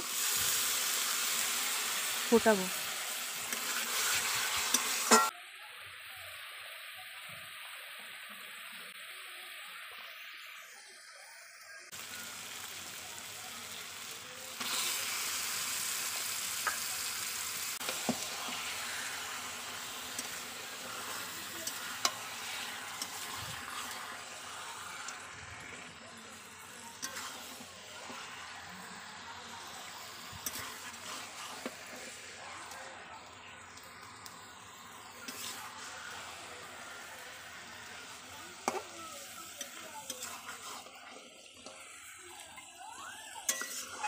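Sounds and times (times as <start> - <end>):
meat sizzling: 0.0 - 44.0
sauce simmering in pan: 11.5 - 44.0.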